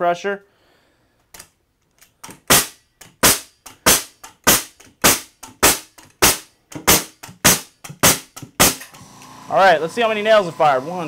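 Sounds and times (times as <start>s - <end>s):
nail gun firing: 2.2s - 9.0s.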